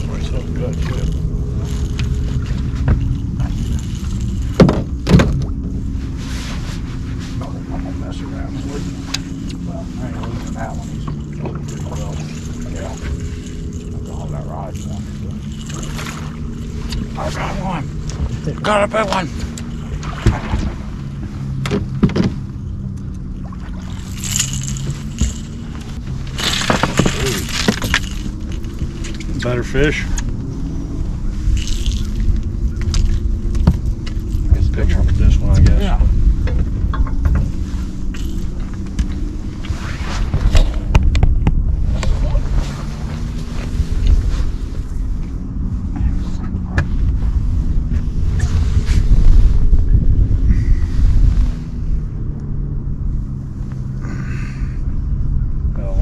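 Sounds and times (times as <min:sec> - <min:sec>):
steady low hum: 0:00.0 - 0:56.0
steady low rumble: 0:00.0 - 0:56.0
fish splashing: 0:22.8 - 0:29.2
scuffling and knocks: 0:23.9 - 0:29.5.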